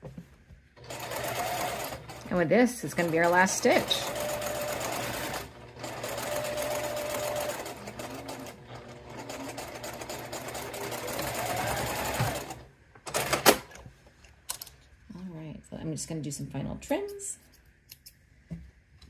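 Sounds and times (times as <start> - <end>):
sewing machine running: 0.8 - 13.6.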